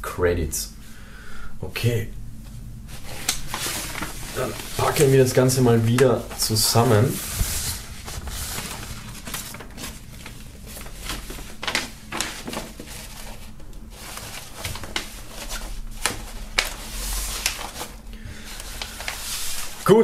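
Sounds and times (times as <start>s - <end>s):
paper poster rustling and crinkling: 2.5s - 20.0s.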